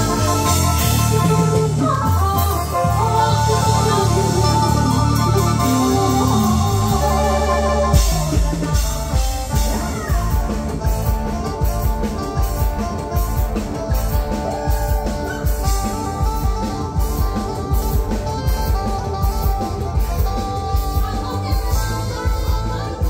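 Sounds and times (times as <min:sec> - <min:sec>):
drum kit steady beat: 0:00.0 - 0:23.0
electric guitar: 0:00.0 - 0:23.0
live band through loudspeakers: 0:00.0 - 0:23.0.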